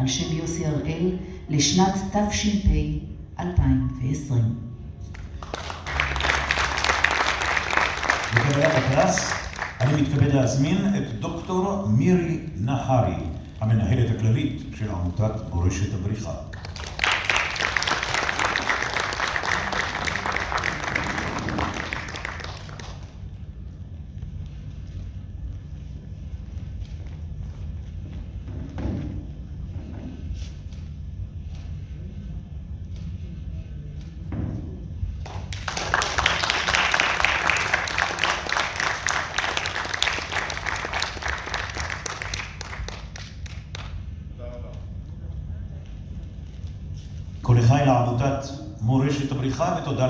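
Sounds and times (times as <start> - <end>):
low steady hum: 0.0 - 50.0
audience applauding: 5.2 - 11.9, 15.9 - 23.4, 35.2 - 44.1.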